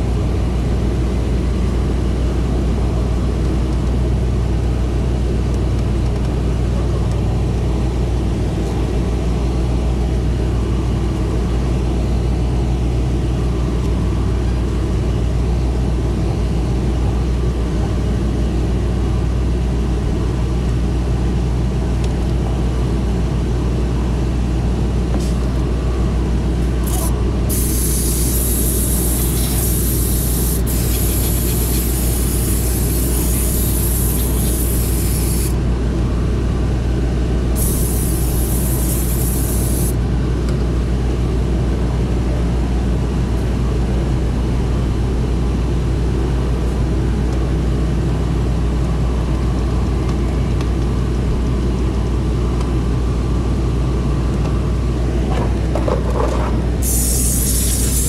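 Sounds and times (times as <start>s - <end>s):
steady low hum: 0.0s - 58.0s
steam cleaner hissing: 26.8s - 35.6s, 37.6s - 40.0s, 56.8s - 58.0s.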